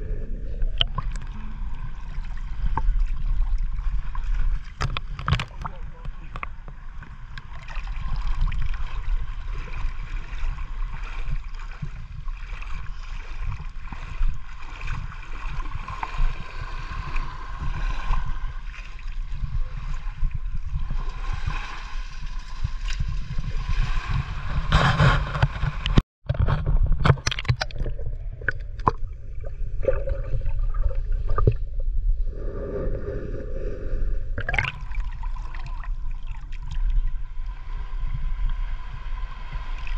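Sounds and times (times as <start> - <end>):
low rumble: 0.0 - 4.8, 27.8 - 39.9
water sloshing and gurgling: 0.0 - 39.9.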